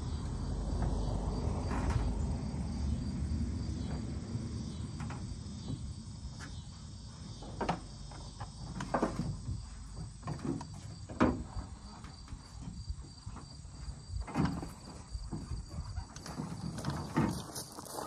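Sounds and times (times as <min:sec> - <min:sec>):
dirt bikes knocking in truck bed: 0:07.3 - 0:17.5.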